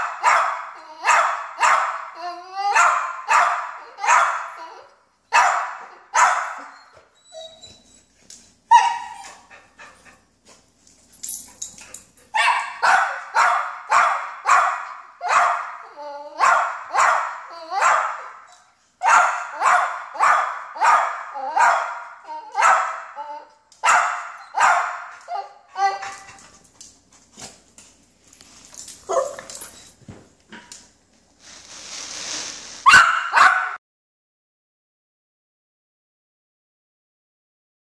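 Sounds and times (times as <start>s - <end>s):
dog barking excitedly: 0.0s - 4.7s, 5.3s - 6.8s, 8.7s - 10.0s, 12.3s - 23.2s, 23.8s - 26.4s, 29.1s - 29.5s, 32.8s - 33.8s.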